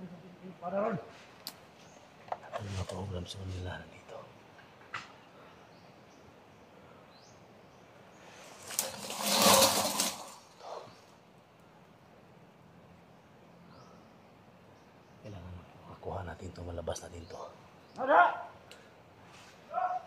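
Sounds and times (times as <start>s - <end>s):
leaves and stems rustling: 1.1s - 4.0s, 8.2s - 11.2s.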